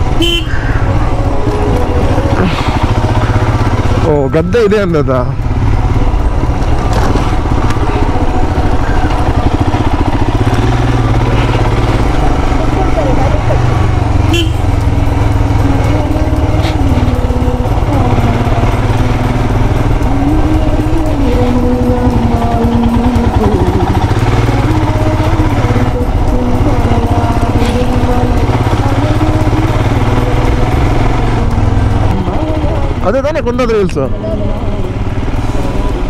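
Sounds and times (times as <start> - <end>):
motorcycle engine running: 0.0 - 36.0.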